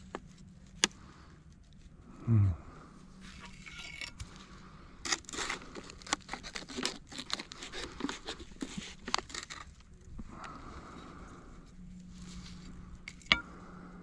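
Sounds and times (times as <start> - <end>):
crinkling and rustling: 5.1 - 10.6.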